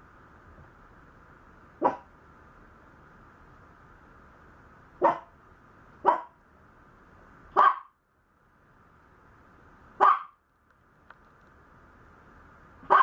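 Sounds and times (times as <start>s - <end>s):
puppy barking: 1.8s - 2.1s, 5.0s - 5.3s, 6.0s - 6.4s, 7.5s - 8.0s, 10.0s - 10.4s.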